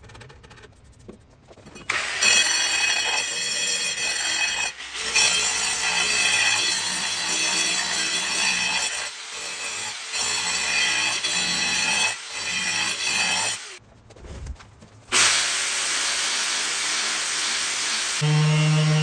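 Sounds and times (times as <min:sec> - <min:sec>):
angle grinder sanding wood: 0:15.2 - 0:19.0.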